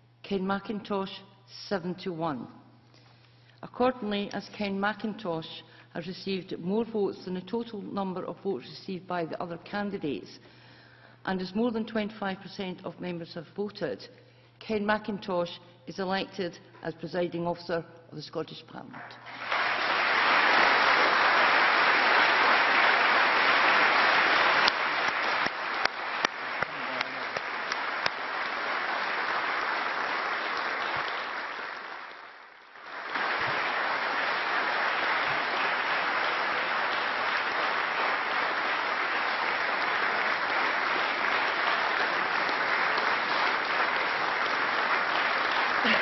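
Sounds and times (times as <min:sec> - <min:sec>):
crowd applauding: 0:19.2 - 0:46.0.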